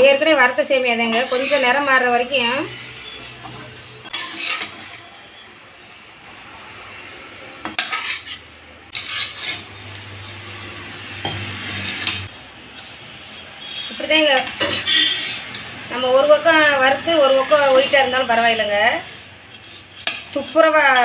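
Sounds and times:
spatula scraping a pan: 0:00.0 - 0:06.1, 0:07.6 - 0:21.0
soft sizzle: 0:00.0 - 0:21.0.

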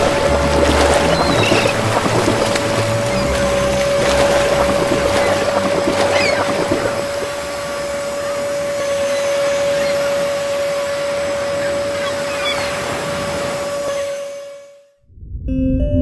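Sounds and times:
steady hum: 0:00.0 - 0:16.0.

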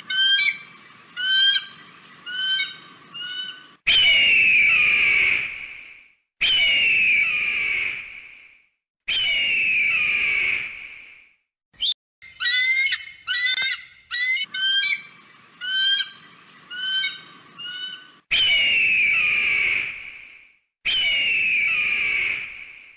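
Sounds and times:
eagle high piping calls: 0:00.0 - 0:05.3, 0:12.2 - 0:19.8.

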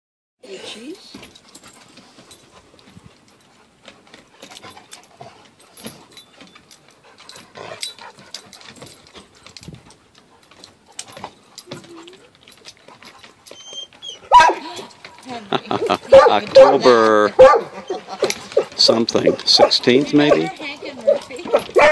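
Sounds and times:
dogs scuffling: 0:00.9 - 0:21.9
dog whining: 0:11.6 - 0:12.7, 0:13.4 - 0:15.0, 0:16.0 - 0:21.9.

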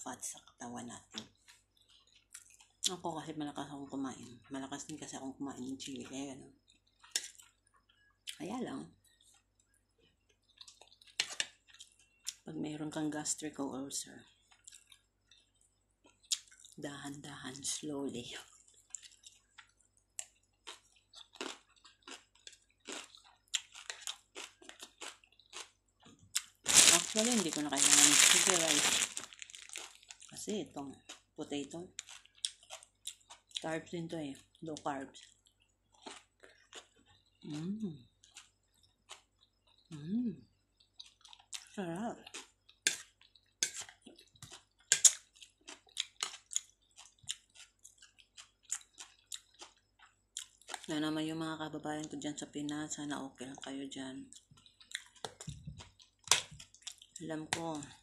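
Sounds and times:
close-up chewing: 0:01.1 - 0:03.0, 0:06.5 - 0:12.5, 0:14.2 - 0:16.8, 0:18.4 - 0:33.7, 0:34.4 - 0:40.0, 0:40.7 - 0:50.9, 0:54.3 - 0:58.0.

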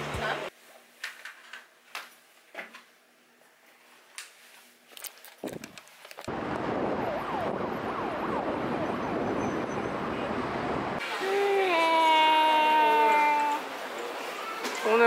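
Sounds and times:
city traffic rumble: 0:05.6 - 0:15.0.

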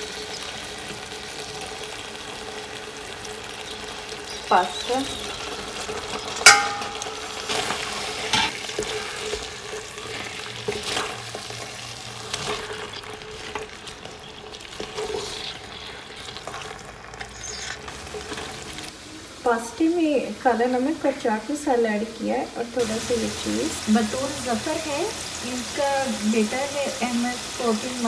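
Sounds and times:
vegetables sizzling in a pan: 0:00.0 - 0:28.0
spatula scraping pan: 0:05.2 - 0:18.9.

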